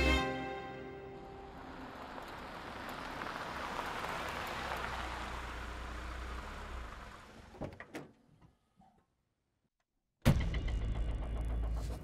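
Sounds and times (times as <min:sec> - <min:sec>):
car tyres hissing on pavement: 0:01.5 - 0:07.5.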